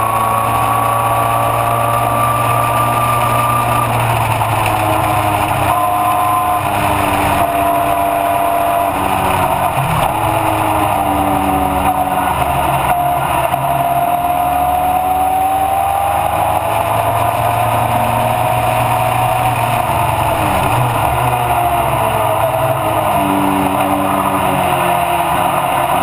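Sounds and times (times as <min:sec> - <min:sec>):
racing car engine droning: 0:00.0 - 0:26.0.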